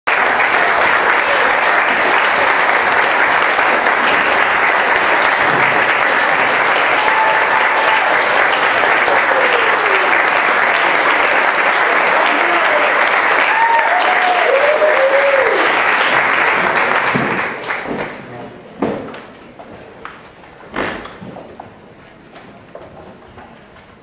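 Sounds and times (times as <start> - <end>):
audience applauding: 0.1 - 18.2.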